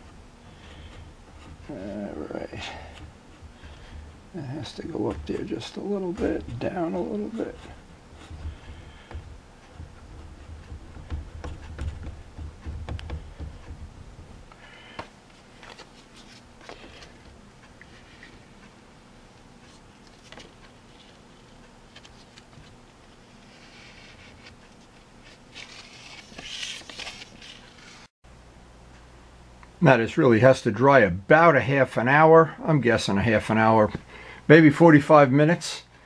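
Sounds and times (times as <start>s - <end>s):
fingers rubbing decal on plastic: 0.7s - 14.5s
small clicks and scrapes: 19.6s - 28.1s.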